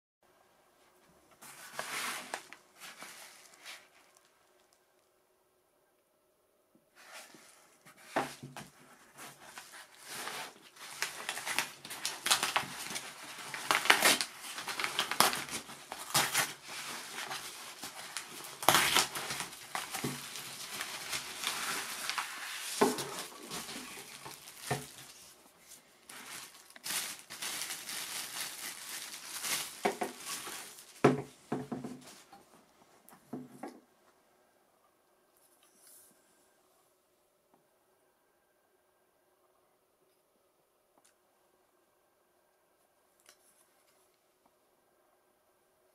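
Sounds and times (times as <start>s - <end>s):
paper envelope crinkling and tearing: 8.8s - 31.1s.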